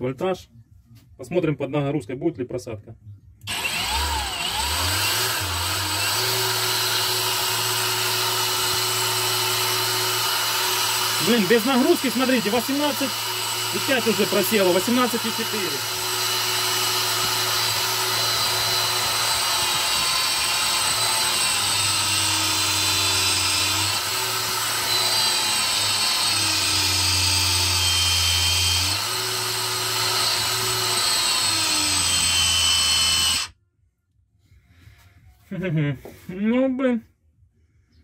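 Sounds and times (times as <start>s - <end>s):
angle grinder running under load: 3.5s - 33.5s.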